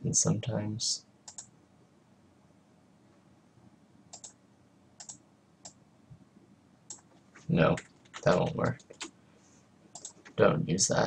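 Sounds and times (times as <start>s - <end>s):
faint mouse clicks: 1.2s - 1.5s, 4.1s - 4.4s, 5.0s - 5.8s, 6.9s - 9.2s, 9.9s - 10.4s.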